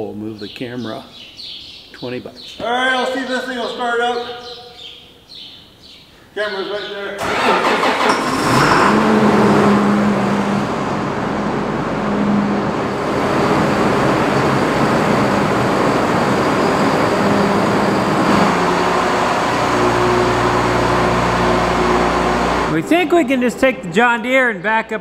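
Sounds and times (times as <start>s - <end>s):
tractor diesel engine running: 7.2s - 24.0s.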